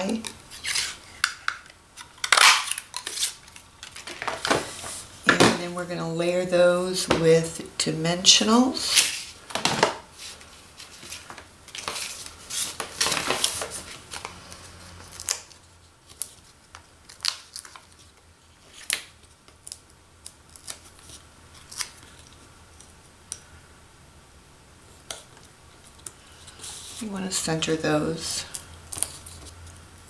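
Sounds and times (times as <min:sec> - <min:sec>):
paper rustling and crinkling: 0:00.1 - 0:01.3, 0:08.9 - 0:19.9.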